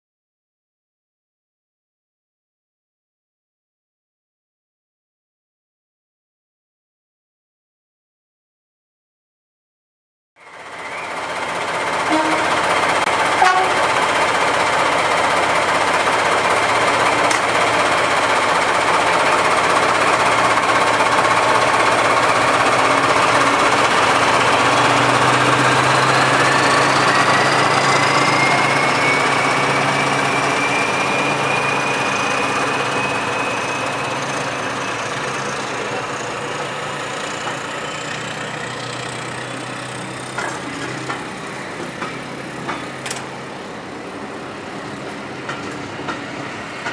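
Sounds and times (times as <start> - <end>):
diesel locomotives working hard: 10.4 - 46.9
train coaches rolling past: 10.4 - 46.9
rising engine whine: 22.5 - 37.1.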